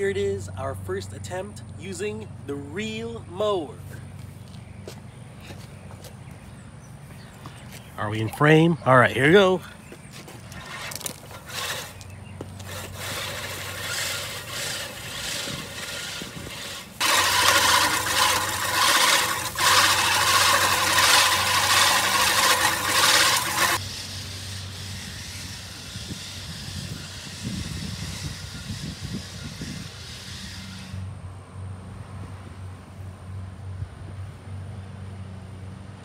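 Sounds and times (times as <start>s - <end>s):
reel mower cutting grass: 10.4s - 31.1s.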